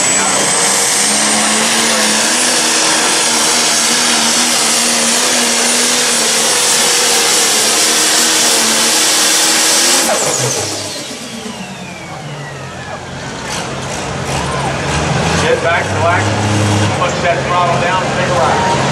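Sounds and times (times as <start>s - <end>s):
turbo whine: 0.0s - 13.1s
diesel engine at full throttle: 0.0s - 18.9s.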